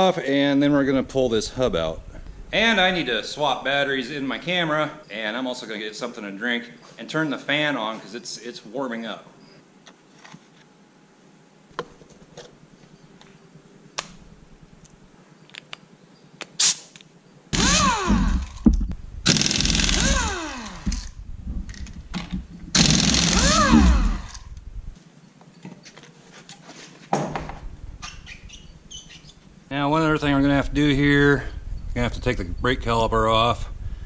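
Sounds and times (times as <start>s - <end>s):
pneumatic impact wrench: 16.6s - 16.9s, 17.5s - 18.7s, 19.3s - 21.1s, 22.7s - 24.5s.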